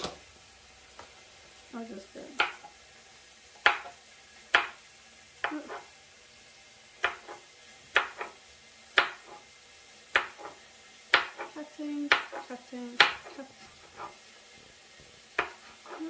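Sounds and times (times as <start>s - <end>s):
knife chopping on plastic board: 2.4s - 2.7s, 3.6s - 4.8s, 7.0s - 8.4s, 9.0s - 9.4s, 10.1s - 14.2s, 15.4s - 16.0s.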